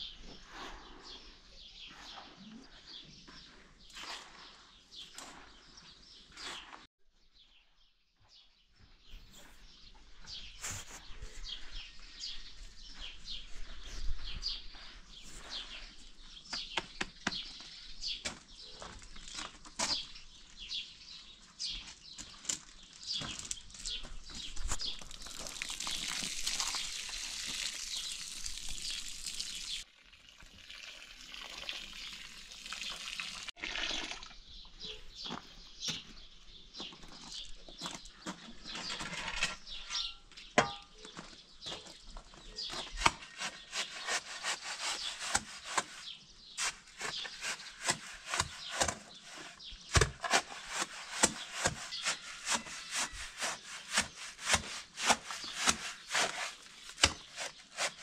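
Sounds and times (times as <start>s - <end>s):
birds chirping: 0.0s - 30.2s, 31.2s - 54.2s
water pouring and splashing: 24.7s - 34.4s.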